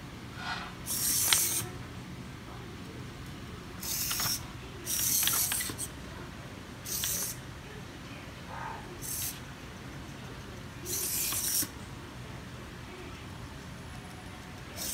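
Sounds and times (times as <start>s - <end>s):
gear clicks: 0.9s - 1.6s, 3.8s - 5.9s, 6.8s - 7.4s, 9.0s - 11.7s, 13.1s - 14.9s
servo motors whirring: 0.9s - 1.7s, 3.8s - 5.9s, 6.9s - 7.4s, 10.8s - 11.7s.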